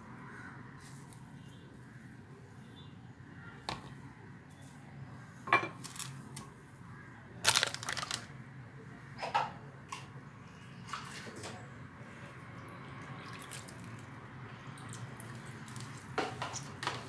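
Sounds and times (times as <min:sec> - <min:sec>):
bread crusts crackling: 0:07.4 - 0:08.3.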